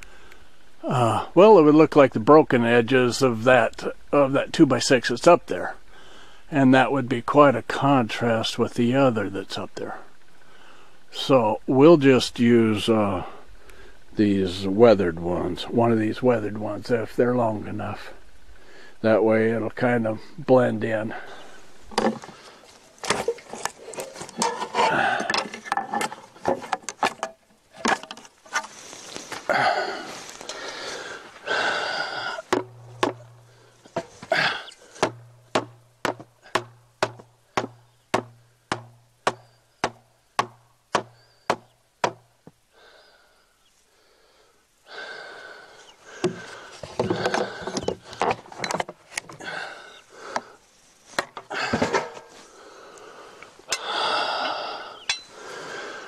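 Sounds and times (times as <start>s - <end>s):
wood cracking and scraping: 21.8s - 29.6s, 46.2s - 49.5s
hammer blows on wooden board: 35.0s - 42.3s.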